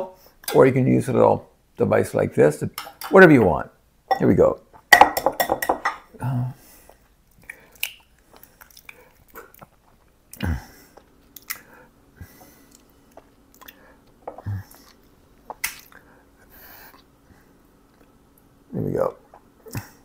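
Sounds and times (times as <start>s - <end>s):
egg white squishing: 7.3s - 10.4s.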